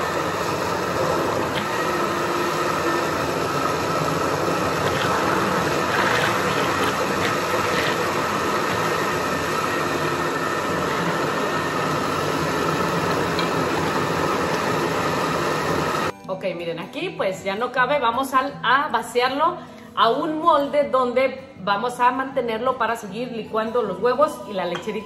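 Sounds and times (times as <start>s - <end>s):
blender running: 0.0s - 16.1s.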